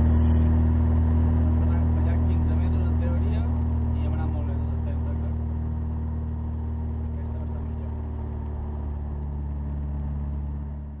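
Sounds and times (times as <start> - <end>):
car engine idling low: 0.0 - 11.0.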